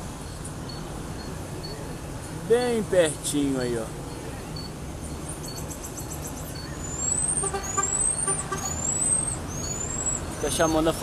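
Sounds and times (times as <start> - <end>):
marmoset high whistles: 5.5 - 10.3.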